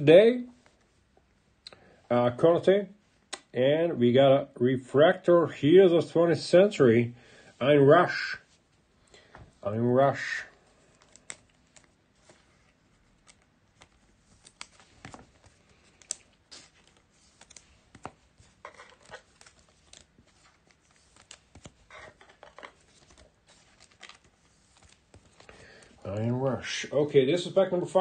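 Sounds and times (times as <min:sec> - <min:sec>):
plastic sleeve rustling: 0:09.6 - 0:26.7
soft clicks of cards: 0:10.8 - 0:26.0.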